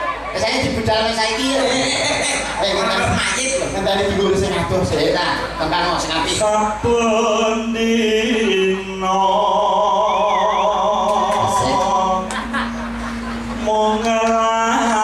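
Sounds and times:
person singing with vibrato: 6.4 - 15.0
steady low tone: 6.8 - 15.0.

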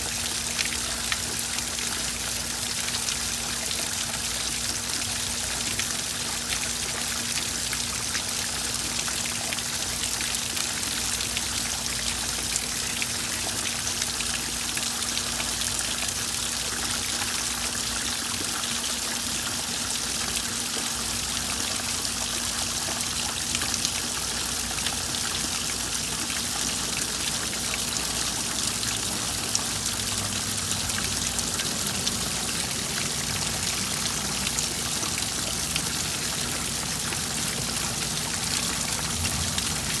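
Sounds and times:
water falling over stones: 0.0 - 40.0.

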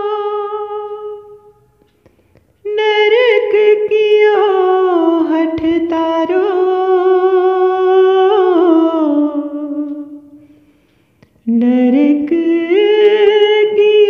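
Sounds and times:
person singing devotional melody: 0.0 - 14.0.

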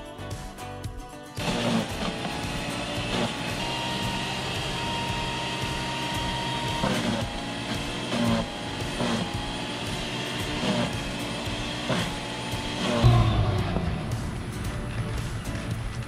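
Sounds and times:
electric leaf mulcher running: 1.4 - 16.0.

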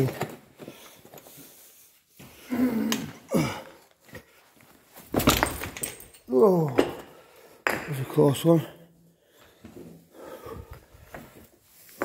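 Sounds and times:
person grunting with effort: 2.5 - 3.8.

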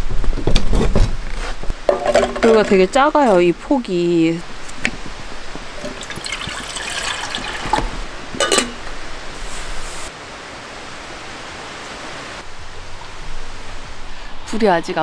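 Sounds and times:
mountain stream rushing: 1.8 - 14.6
metal kettle clinks and knocks: 1.9 - 2.9, 5.8 - 6.4, 7.6 - 8.8.

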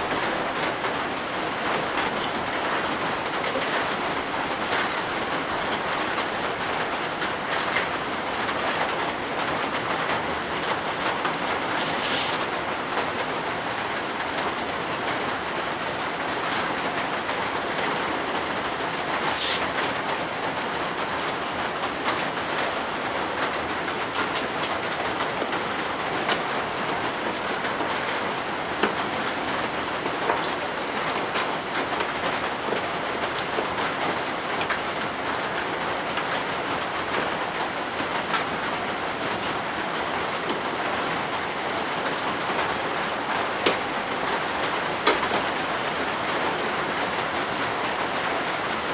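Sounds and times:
socket ratchet clicking: 0.0 - 0.6, 1.6 - 3.0, 3.6 - 4.0, 4.6 - 6.4, 7.5 - 7.9, 8.5 - 8.9, 19.4 - 19.9
steady hiss: 11.7 - 12.5, 19.2 - 20.0.

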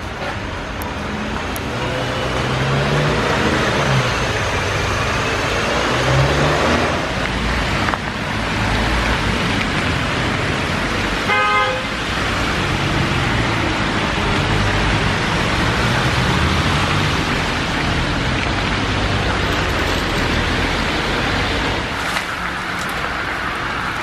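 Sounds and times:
cars driving on wet street: 0.0 - 24.0
car horn honk: 11.3 - 12.0.

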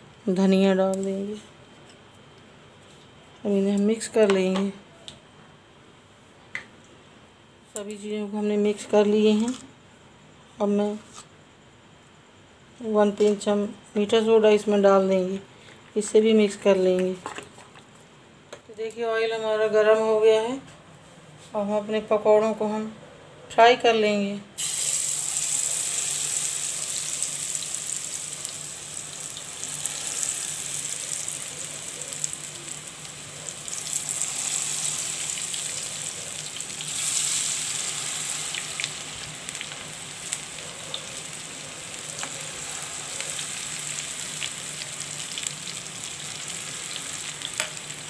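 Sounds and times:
deep-frying sizzle with crackles: 24.6 - 48.0.

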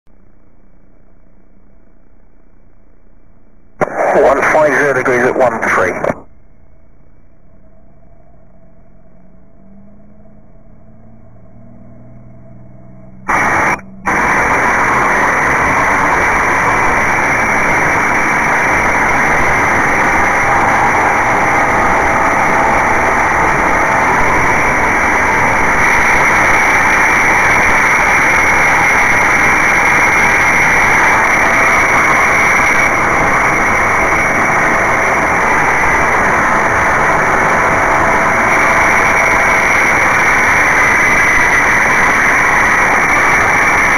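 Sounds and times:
aircraft engine at full power: 3.8 - 6.2, 12.4 - 43.9
wind rush: 13.3 - 43.9.

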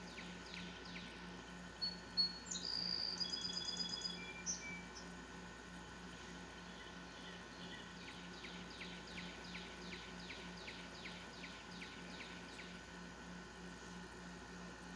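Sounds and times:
faint low pulsing hum: 0.0 - 14.9
bird singing down-slurred notes: 1.8 - 5.1.

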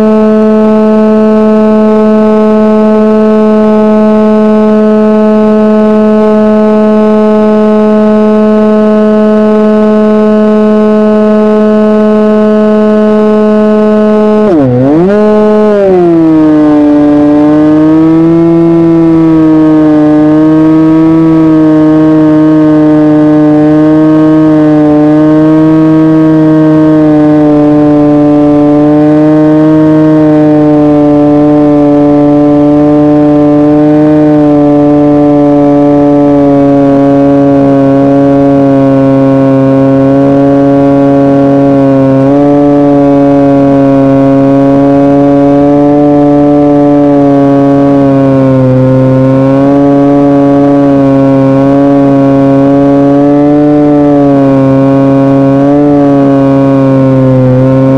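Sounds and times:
drone motor buzzing hum: 0.0 - 57.9.

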